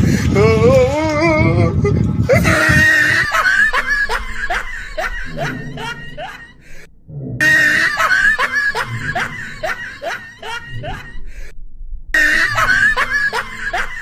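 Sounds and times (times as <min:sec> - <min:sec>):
man laughing in high squeals: 0:02.3 - 0:06.6, 0:07.4 - 0:11.3, 0:12.2 - 0:14.0.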